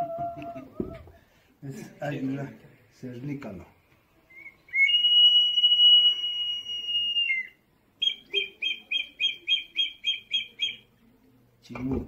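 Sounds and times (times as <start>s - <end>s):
long high whistle: 4.3s - 8.8s.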